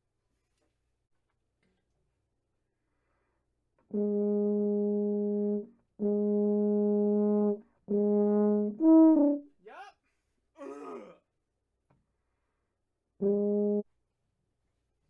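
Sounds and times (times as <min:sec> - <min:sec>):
tuba long notes: 0:03.9 - 0:09.5, 0:13.2 - 0:13.8.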